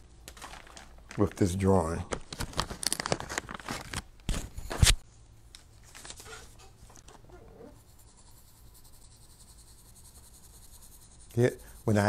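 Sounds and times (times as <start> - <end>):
pencil strokes on paper: 7.6 - 12.0.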